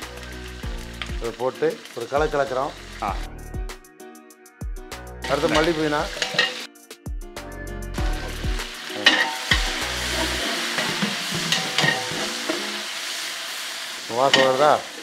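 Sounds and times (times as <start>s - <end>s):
oil sizzling in a pot: 0.0s - 3.8s, 5.2s - 6.8s, 7.9s - 15.0s
metal ladle scraping pot: 5.2s - 6.7s, 9.0s - 12.9s.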